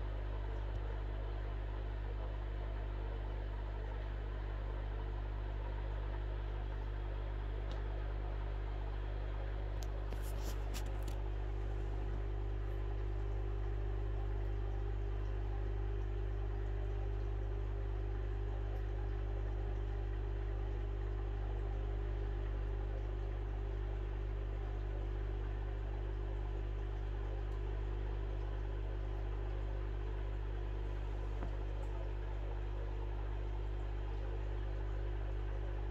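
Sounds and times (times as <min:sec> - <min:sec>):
aquarium pumps humming: 0:00.0 - 0:35.9
water and air bubbles: 0:09.3 - 0:35.9.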